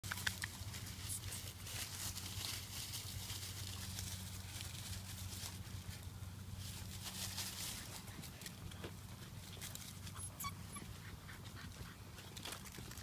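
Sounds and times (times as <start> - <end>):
puppies pattering over dry leaves: 0.0 - 13.0
steady low hum: 0.0 - 13.0.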